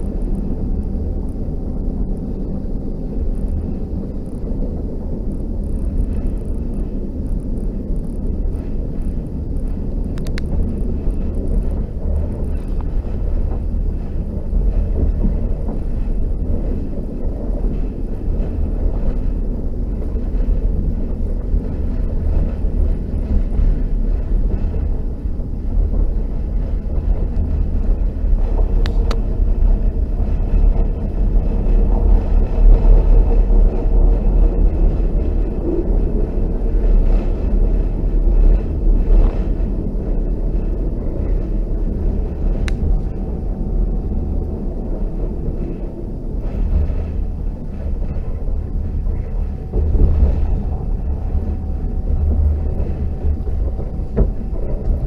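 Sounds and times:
train wheels rumbling: 0:00.0 - 0:55.0
faint clicks: 0:09.0 - 0:10.8.

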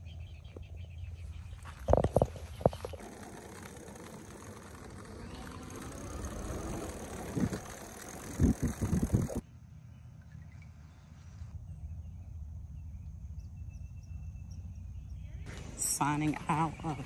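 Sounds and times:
vehicle engine running: 0:01.0 - 0:09.4.

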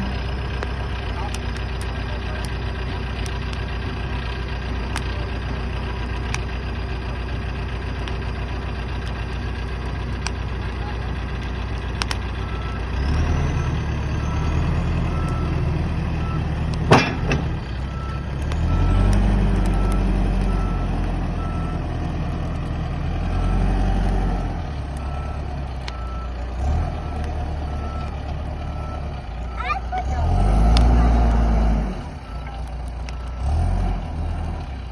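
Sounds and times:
diesel engine revving: 0:00.0 - 0:34.9
reversing alarm beeping: 0:12.4 - 0:21.8, 0:23.2 - 0:33.7.

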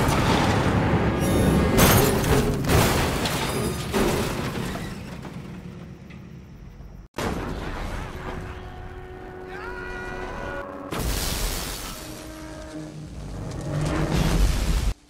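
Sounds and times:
vehicle tipping over and rolling: 0:00.0 - 0:06.6
heavy vehicle crash: 0:00.0 - 0:15.0
rumbling noise: 0:10.6 - 0:15.0.

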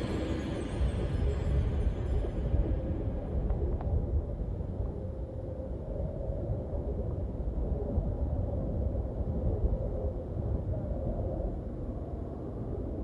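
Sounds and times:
low rumbling drone: 0:00.0 - 0:09.4
faint hum: 0:00.0 - 0:13.0.

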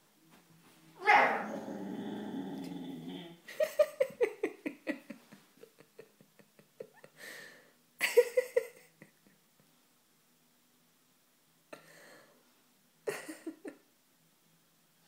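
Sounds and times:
husky yips and grumbles: 0:01.0 - 0:01.8.

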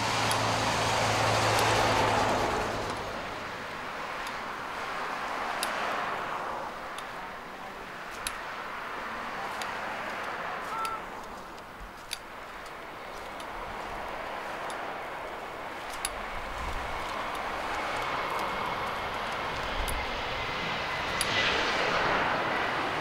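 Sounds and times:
tyre noise of passing cars: 0:00.0 - 0:23.0
light clicks: 0:09.5 - 0:20.0.

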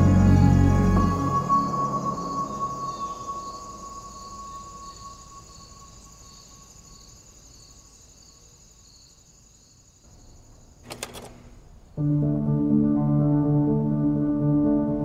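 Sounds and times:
ambient music: 0:00.0 - 0:05.6, 0:11.9 - 0:15.0
crickets chirping: 0:00.0 - 0:12.0.

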